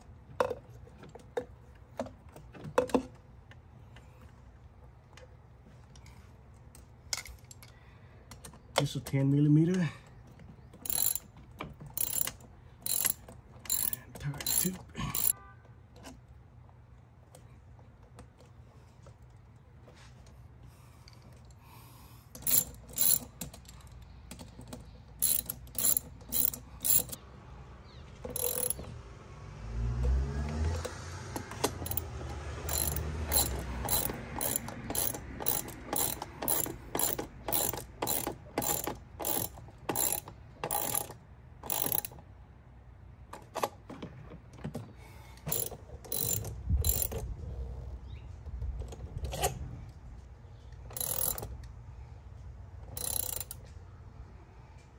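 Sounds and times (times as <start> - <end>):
hand ratchet clicking: 10.8 - 11.3, 11.9 - 15.4, 22.4 - 27.2, 28.3 - 28.8, 31.5 - 42.2, 45.5 - 47.2, 50.9 - 51.5, 52.9 - 53.6.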